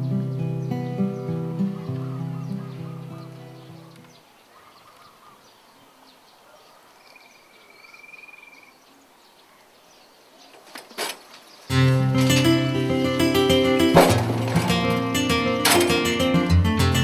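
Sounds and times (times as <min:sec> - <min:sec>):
acoustic guitar music: 0:00.0 - 0:04.1, 0:11.7 - 0:17.0
faint bird chirps: 0:00.0 - 0:11.7.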